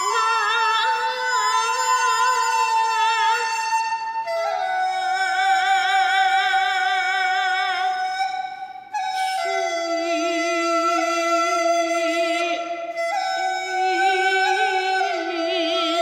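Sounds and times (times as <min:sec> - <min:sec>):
woman singing: 0:00.0 - 0:03.8, 0:09.4 - 0:12.7, 0:13.7 - 0:16.0
bamboo flute melody: 0:00.0 - 0:16.0.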